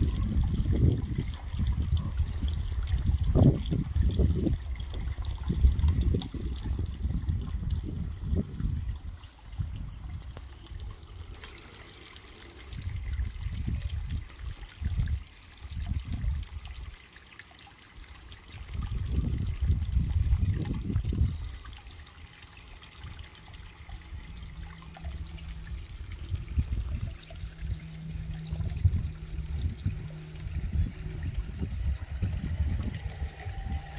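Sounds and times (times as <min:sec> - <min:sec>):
wind buffeting microphone: 0:00.0 - 0:11.8, 0:12.6 - 0:16.9, 0:18.5 - 0:21.8, 0:23.0 - 0:33.9
water trickling: 0:00.0 - 0:33.9.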